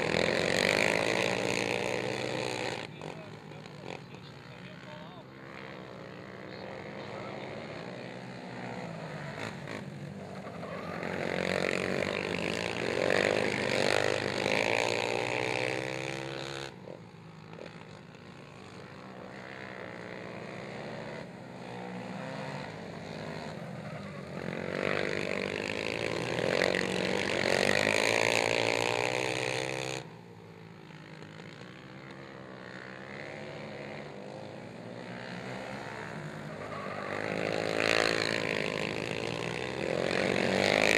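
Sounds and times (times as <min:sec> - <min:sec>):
quad engines revving: 0:00.0 - 0:40.9.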